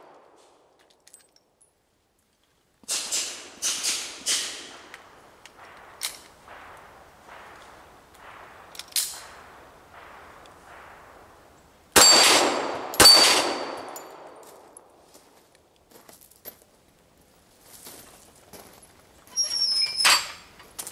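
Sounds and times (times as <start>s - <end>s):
pistol shots: 2.9s - 11.4s, 12.0s - 14.6s.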